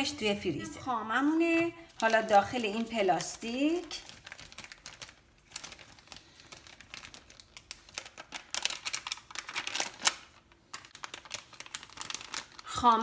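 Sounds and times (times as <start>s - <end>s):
plastic bag crinkling: 1.4s - 13.0s.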